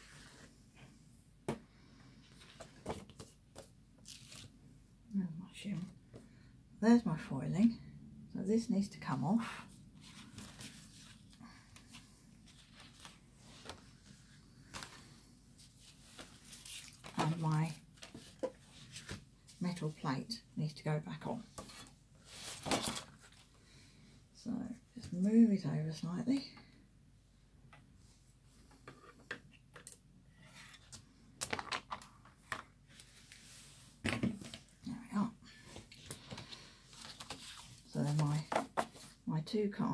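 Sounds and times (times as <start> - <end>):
faint clicks and rustles of handling: 9.8 - 19.6, 35.5 - 39.2.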